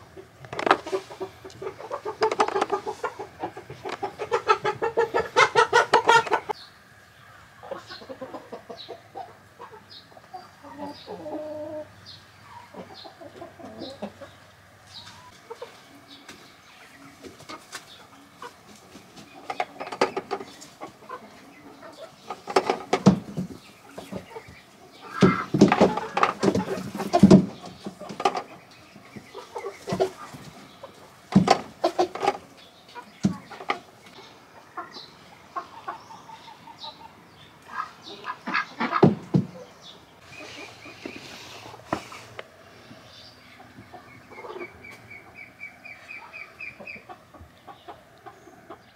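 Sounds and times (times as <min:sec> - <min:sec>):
hens clucking: 0:00.0 - 0:48.9
sharp knocks: 0:39.0 - 0:39.6.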